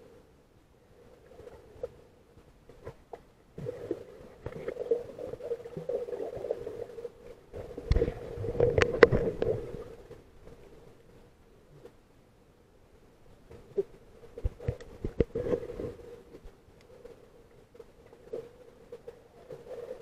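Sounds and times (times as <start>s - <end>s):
faint steady hum: 0.0s - 20.0s
water moving against camera housing: 7.8s - 10.3s, 13.6s - 16.5s.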